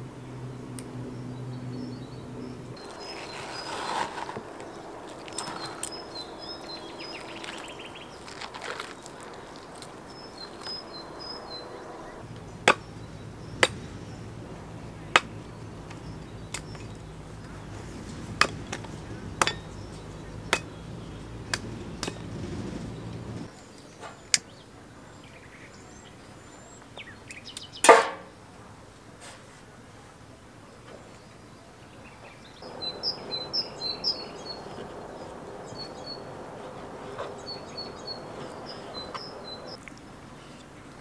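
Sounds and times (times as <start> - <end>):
birds chirping faintly: 0.0 - 41.0
low steady hum: 4.3 - 23.5
sharp chopping strikes: 12.6 - 14.2, 15.1 - 15.4, 18.2 - 20.8, 27.9 - 28.2.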